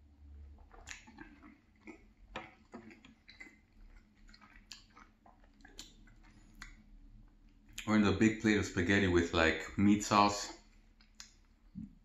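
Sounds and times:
wet mouth clicks and smacks: 0.6 - 6.8, 10.5 - 12.0.

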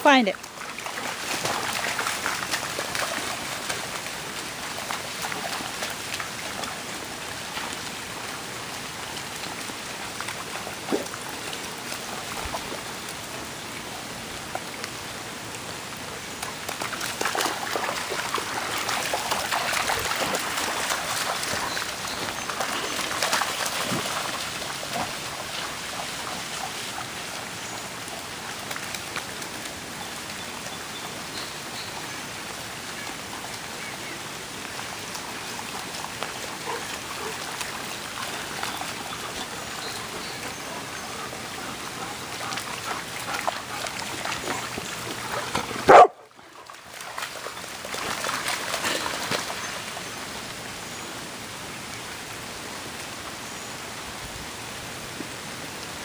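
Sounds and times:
rain pattering on wet lawn: 0.0 - 56.0
dogs splashing through water: 0.3 - 51.0.

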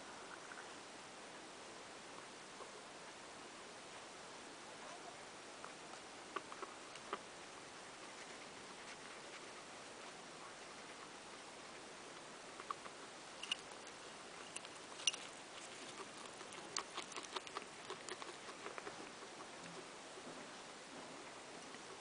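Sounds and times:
guinea pigs crunching food: 4.8 - 22.0.

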